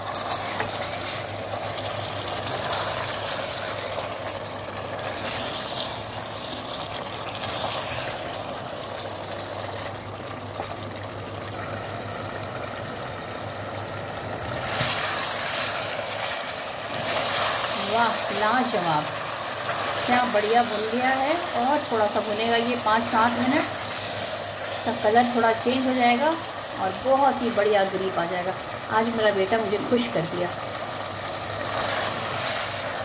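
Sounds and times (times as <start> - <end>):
chicken sizzling in a pot: 0.0 - 33.0
spatula stirring: 5.0 - 8.7.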